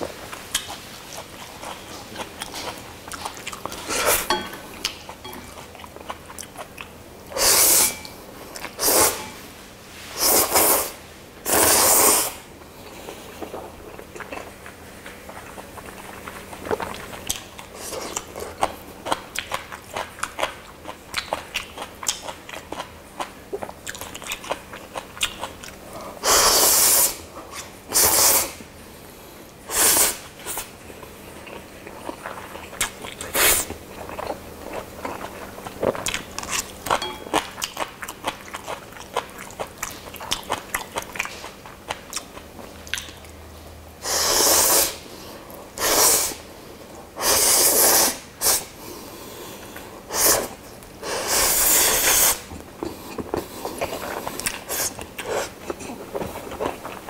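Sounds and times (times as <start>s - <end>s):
wet chewing and mouth sounds: 0.1s - 7.0s, 12.6s - 28.4s, 30.2s - 43.4s, 50.1s - 57.0s
loud noodle slurps: 11.5s - 12.4s, 44.0s - 45.0s, 47.2s - 48.6s.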